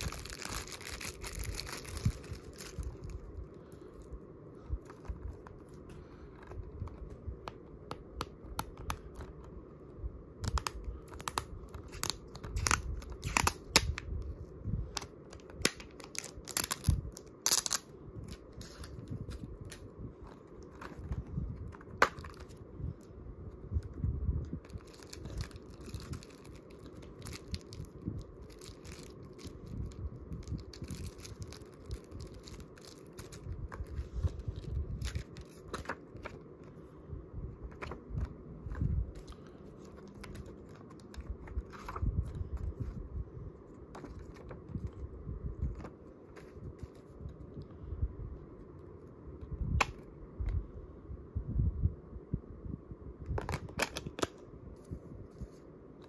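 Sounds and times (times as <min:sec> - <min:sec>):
shrink wrap crinkling and tearing: 0:00.0 - 0:07.6, 0:10.4 - 0:23.1, 0:24.6 - 0:36.4, 0:37.7 - 0:42.9, 0:53.4 - 0:54.4.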